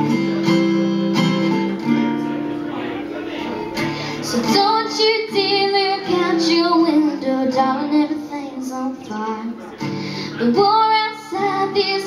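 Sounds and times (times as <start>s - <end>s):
strummed acoustic guitar: 0.0s - 12.0s
woman singing: 4.2s - 12.0s.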